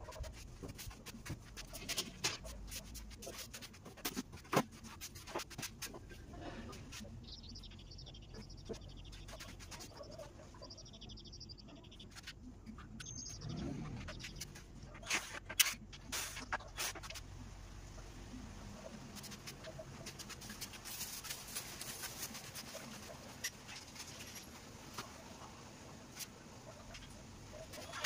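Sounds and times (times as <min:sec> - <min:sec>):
small birds chirping: 0:04.8 - 0:15.6, 0:17.9 - 0:28.0.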